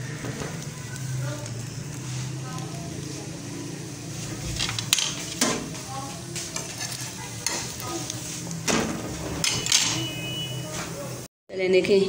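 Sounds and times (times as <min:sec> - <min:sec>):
batter sizzling in a pan: 0:00.0 - 0:11.2
spatula scraping a pan: 0:04.2 - 0:10.2.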